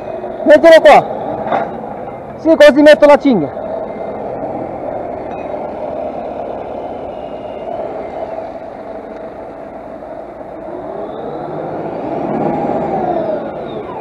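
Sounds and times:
vehicle engine revving: 3.0s - 14.0s.

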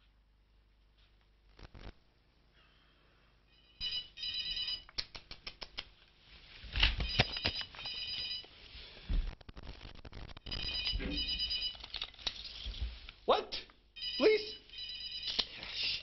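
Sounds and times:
electronic telephone ringing: 3.5s - 4.9s, 7.0s - 8.5s, 10.5s - 11.9s, 14.0s - 15.4s.

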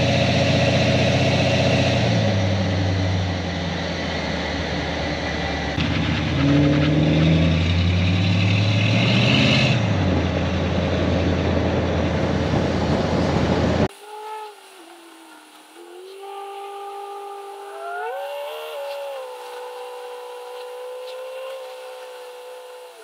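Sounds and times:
car engine accelerating: 0.0s - 13.9s
road and wind noise: 0.0s - 13.9s.

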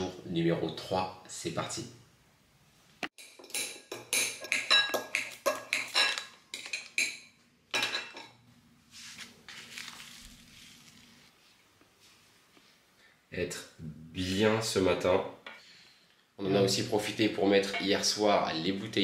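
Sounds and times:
tableware clinking on a table: 3.2s - 8.4s, 17.5s - 18.2s
soft rustle: 8.8s - 13.0s.

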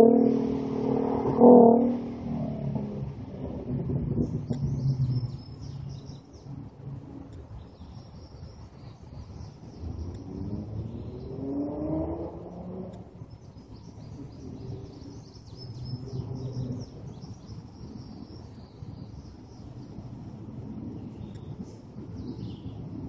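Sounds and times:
car engine accelerating: 0.0s - 7.5s, 9.7s - 17.2s
birds chirping: 4.2s - 23.0s.

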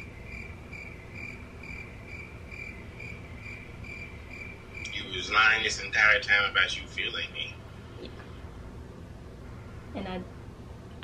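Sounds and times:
cricket chirping: 0.0s - 6.0s.

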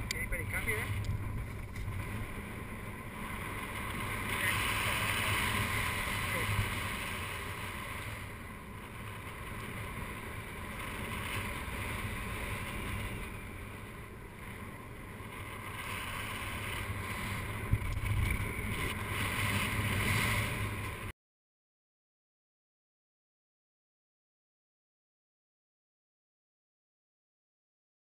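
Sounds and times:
wind rushing over microphone: 0.0s - 21.1s.

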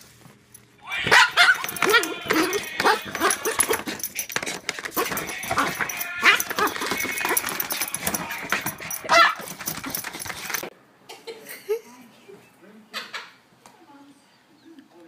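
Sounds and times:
paws scratching paper card: 1.0s - 10.7s.

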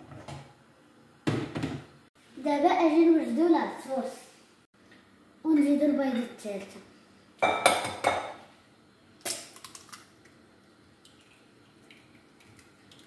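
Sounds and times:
eggshell crackling: 9.2s - 10.4s.

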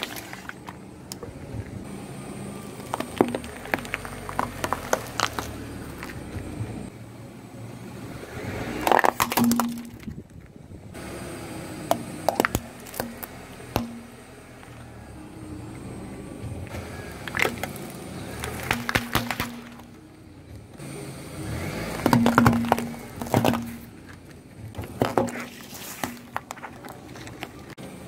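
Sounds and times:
tyre crushing objects: 0.0s - 1.8s, 2.7s - 6.4s, 8.7s - 10.2s, 11.9s - 14.7s, 16.7s - 20.0s, 21.5s - 27.8s.

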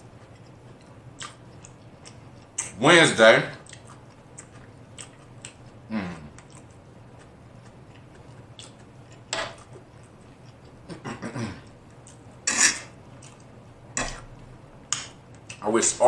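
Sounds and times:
eating sounds: 0.0s - 2.8s, 3.5s - 12.3s
low steady hum: 0.0s - 16.0s
fork scraping on tray: 12.5s - 12.9s.

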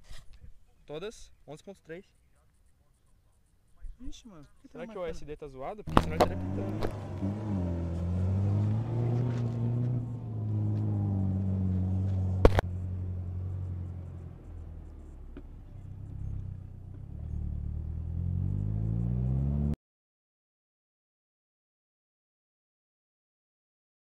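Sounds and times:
pickup truck engine revving: 5.9s - 19.8s
sharp knock: 12.4s - 12.7s.

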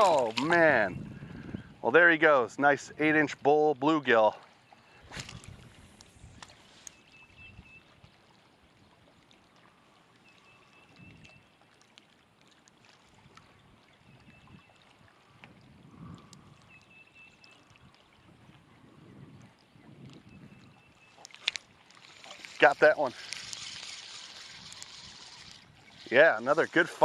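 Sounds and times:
small waves lapping: 0.0s - 1.0s, 3.7s - 27.0s
faint wind: 0.0s - 27.0s.

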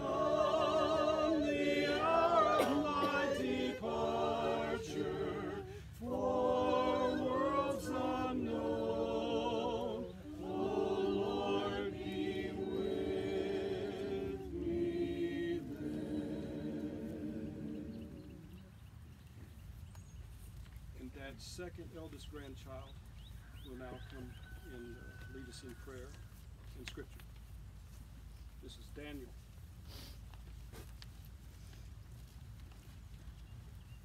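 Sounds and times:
group singing a hymn unaccompanied: 0.0s - 18.8s.

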